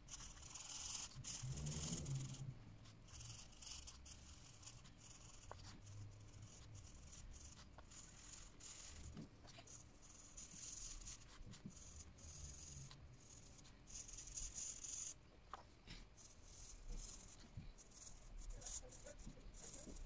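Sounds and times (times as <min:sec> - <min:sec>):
marker scribbling on paper: 0:00.0 - 0:20.0.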